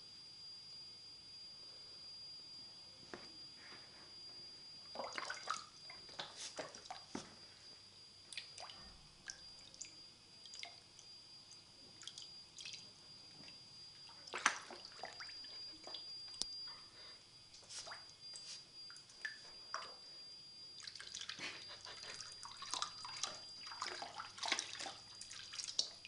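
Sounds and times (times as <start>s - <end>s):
water splashes and drips: 4.9s - 7.1s, 8.3s - 10.8s, 12.0s - 12.9s, 13.5s - 16.0s, 20.8s - 21.4s, 22.4s - 26.0s.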